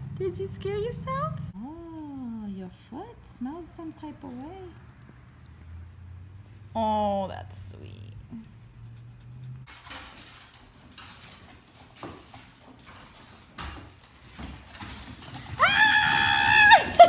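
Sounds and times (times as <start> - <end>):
dog claws clicking on hard floor: 9.7 - 17.0.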